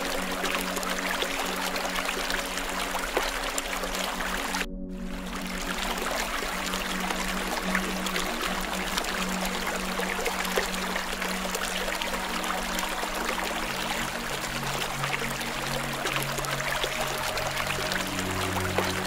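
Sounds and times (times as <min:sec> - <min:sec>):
soft ambient music: 0:00.0 - 0:19.0.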